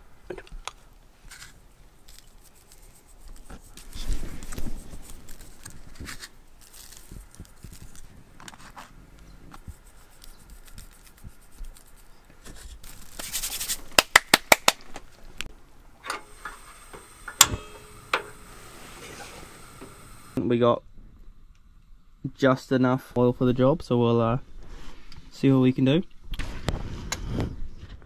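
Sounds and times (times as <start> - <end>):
hands rubbing and scraping meat: 1.3 - 14.1
camping stove igniter click: 16.1 - 18.5
sharp igniter clicks: 16.1 - 18.8
short gas hiss: 16.2 - 20.4.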